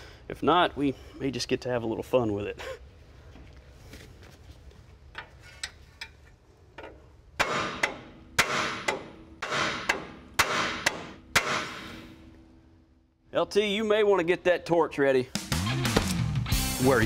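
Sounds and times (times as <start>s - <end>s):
hammer striking metal: 7.4s - 12.1s.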